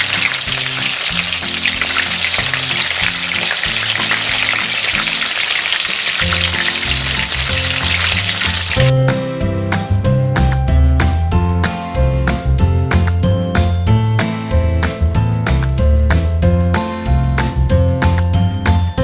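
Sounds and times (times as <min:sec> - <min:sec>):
food sizzling in hot oil: 0:00.0 - 0:08.9
background music: 0:00.0 - 0:19.0.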